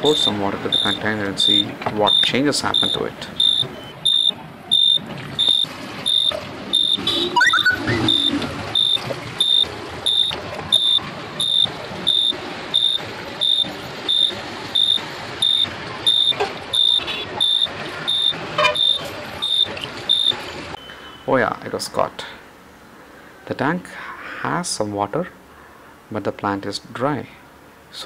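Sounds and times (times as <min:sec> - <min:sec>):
buzzer beeping high tone: 0:00.1 - 0:20.4.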